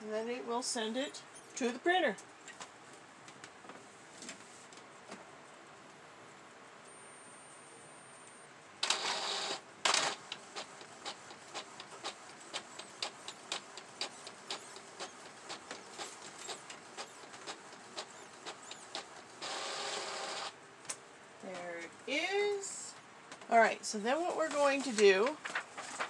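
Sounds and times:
printer ticking: 8.8s - 20.5s
printer mechanism noise: 8.8s - 20.6s.

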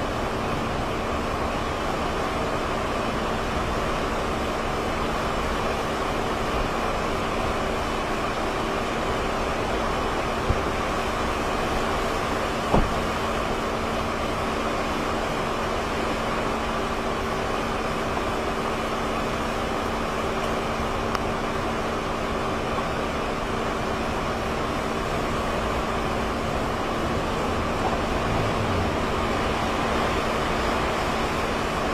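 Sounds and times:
hurricane wind and rain: 0.0s - 31.9s
brief knock: 12.7s - 13.0s.

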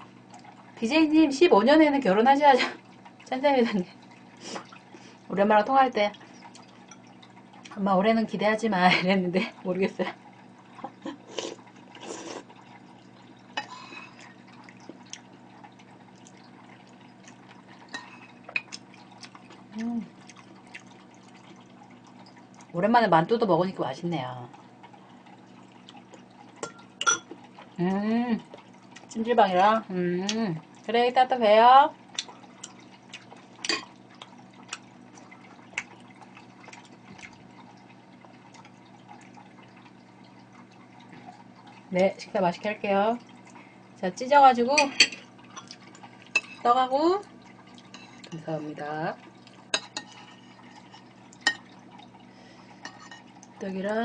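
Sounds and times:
low steady hum: 0.0s - 54.0s
chewing smacks: 14.1s - 22.7s, 32.1s - 40.0s, 45.6s - 46.4s.

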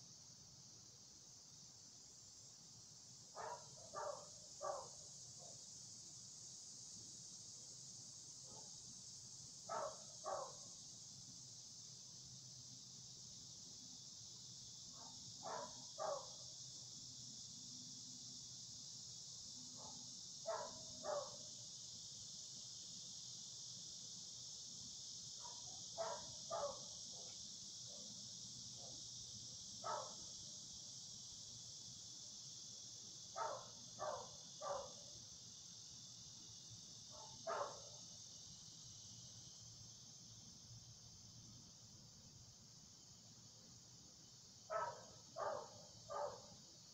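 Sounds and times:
insects hissing: 0.0s - 46.9s
dog barking: 3.4s - 5.0s, 9.7s - 10.6s, 15.0s - 16.4s, 19.8s - 21.4s, 25.4s - 27.4s, 29.8s - 30.2s, 33.4s - 35.0s, 37.1s - 38.0s, 44.7s - 46.5s.

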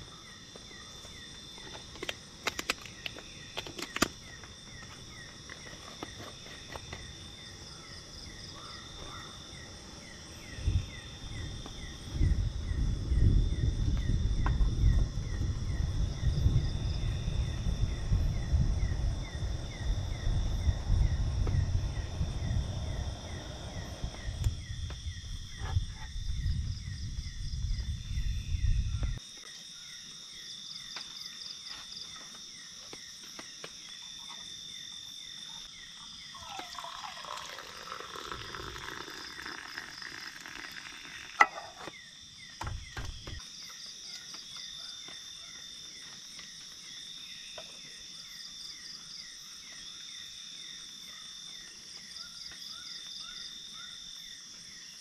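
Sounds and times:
crickets and insects chirping: 0.0s - 55.0s
camping stove burner rumbling: 36.7s - 41.9s.

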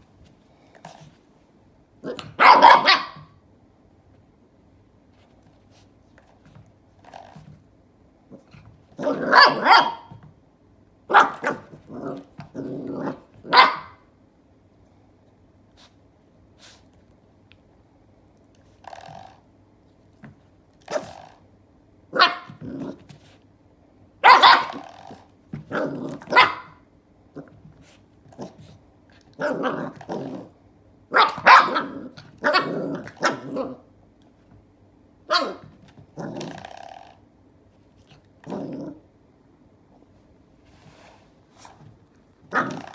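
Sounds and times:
puppy barking and growling: 2.0s - 3.4s, 8.3s - 10.3s, 11.1s - 14.1s, 20.8s - 21.4s, 22.1s - 23.2s, 24.2s - 27.7s, 28.3s - 33.9s, 35.2s - 36.8s, 42.4s - 42.9s.

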